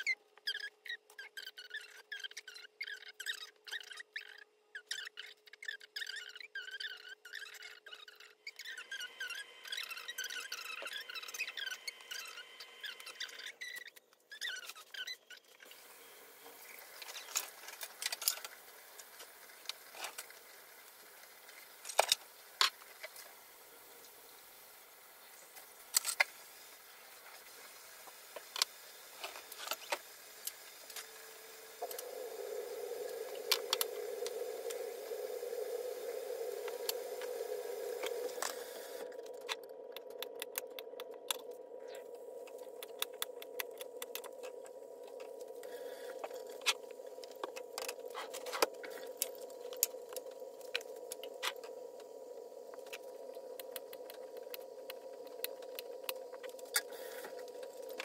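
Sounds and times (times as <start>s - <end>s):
steady hum: 30.4s - 58.0s.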